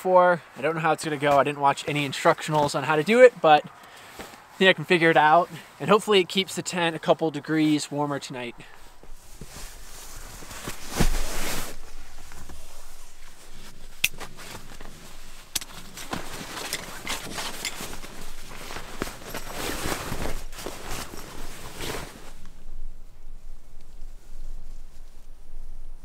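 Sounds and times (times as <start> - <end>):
fabric rustling: 8.4 - 26.0.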